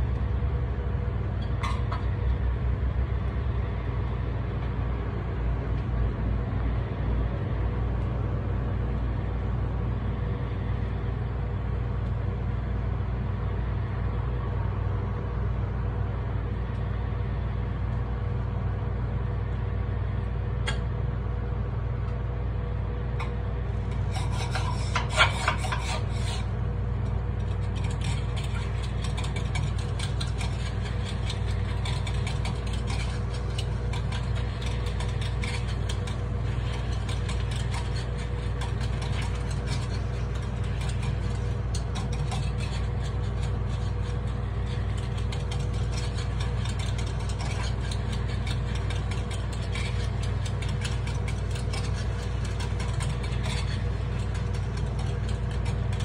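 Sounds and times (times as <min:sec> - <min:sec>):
steady low hum: 0:00.0 - 0:56.0
metal picks scraping a pan: 0:23.9 - 0:26.5, 0:27.4 - 0:56.0.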